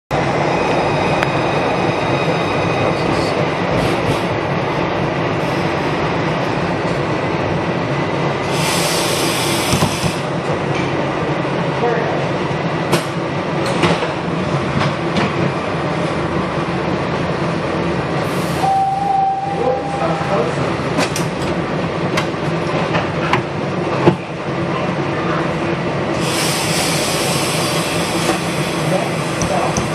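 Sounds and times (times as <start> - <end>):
subway train rumble: 0.1 - 29.9
air hiss: 8.5 - 10.2, 26.2 - 29.4
short steady tone: 18.6 - 20.6.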